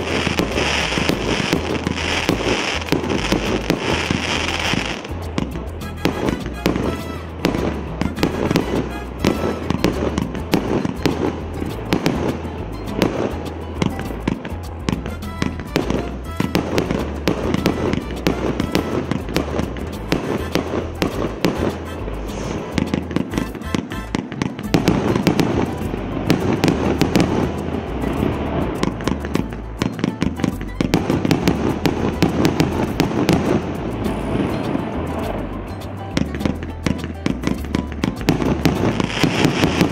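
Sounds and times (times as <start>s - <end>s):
fireworks crackle: 0.0s - 39.9s
fireworks launching and bursting: 0.0s - 39.9s.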